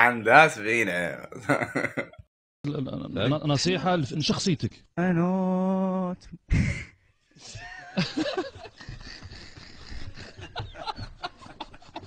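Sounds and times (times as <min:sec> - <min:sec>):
men laughing: 0:01.4 - 0:02.3, 0:07.4 - 0:12.0.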